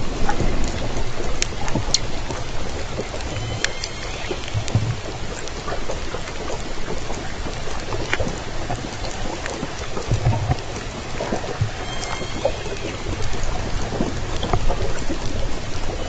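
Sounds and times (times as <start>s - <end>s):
steady underwater hiss: 0.0s - 16.0s
low thumps: 2.7s - 5.3s
sharp whale clicks: 3.0s - 6.5s, 11.3s - 14.6s.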